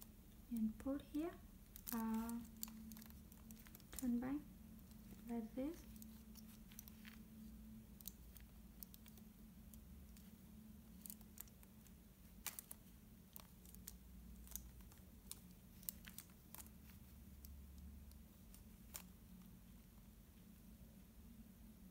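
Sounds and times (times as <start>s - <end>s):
faint steady hum: 0.0s - 21.9s
plastic puzzle pieces clicking: 1.7s - 4.2s, 7.9s - 19.1s.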